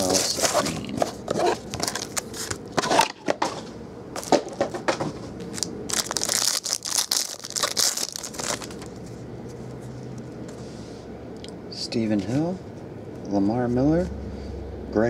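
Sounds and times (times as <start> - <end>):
foil wrapper crinkling and tearing: 5.5 - 9.0.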